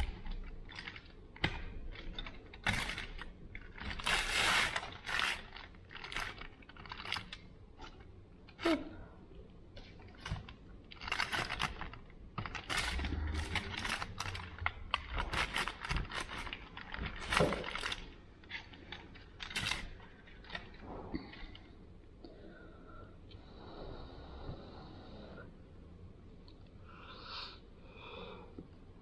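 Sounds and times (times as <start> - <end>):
foil crinkling: 0.0 - 8.0, 10.0 - 20.8.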